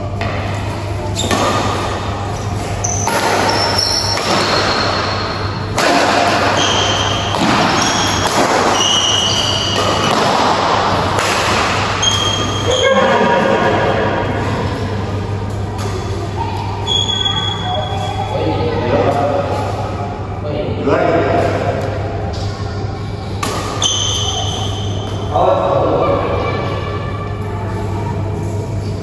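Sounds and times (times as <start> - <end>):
steady low hum: 0.0 - 29.0
rackets hitting shuttlecock: 0.2 - 12.7, 23.3 - 25.2
shoes squeaking on court: 1.0 - 5.4, 6.4 - 10.2, 11.9 - 12.8, 15.4 - 18.3, 23.8 - 25.3.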